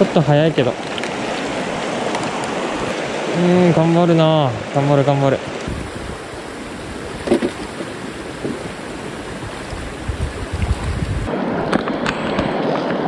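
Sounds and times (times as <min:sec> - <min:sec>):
river water rushing: 0:00.0 - 0:11.6
wind buffeting microphone: 0:05.6 - 0:11.7.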